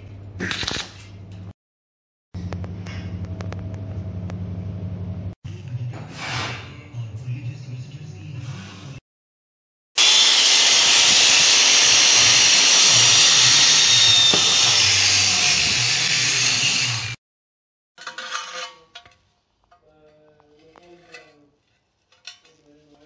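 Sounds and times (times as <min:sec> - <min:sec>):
power tool cutting steel: 0:10.0 - 0:17.2.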